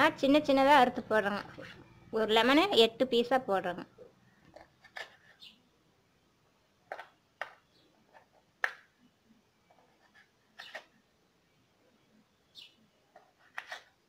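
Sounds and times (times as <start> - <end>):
knife cutting on wooden board: 13.3 - 13.9.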